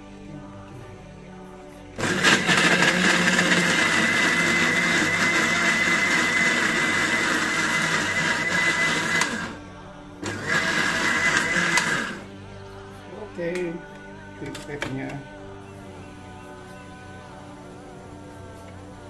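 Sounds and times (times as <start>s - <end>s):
blender running: 2.0s - 9.6s, 10.2s - 12.3s.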